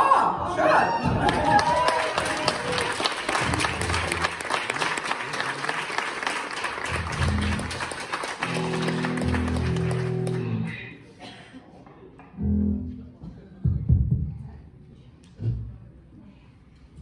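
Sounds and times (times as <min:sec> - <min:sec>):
audience applauding: 0:01.2 - 0:10.7
low bass notes: 0:06.9 - 0:07.8, 0:08.5 - 0:10.8, 0:12.3 - 0:14.6.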